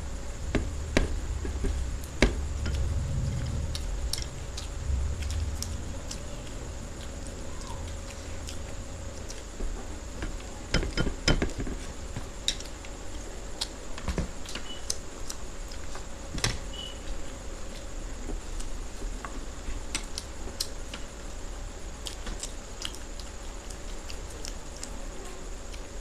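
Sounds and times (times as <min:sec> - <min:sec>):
faint steady hum: 0:00.0 - 0:26.0
eating clicks and smacks: 0:01.5 - 0:06.3, 0:06.9 - 0:11.6, 0:12.4 - 0:16.5, 0:18.5 - 0:25.0.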